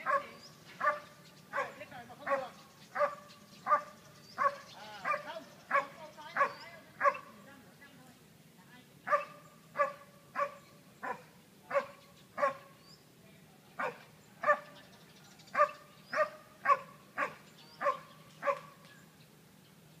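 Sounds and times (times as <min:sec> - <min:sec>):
dog barking: 0:00.0 - 0:07.3, 0:09.1 - 0:12.7, 0:13.8 - 0:14.7, 0:15.6 - 0:18.8.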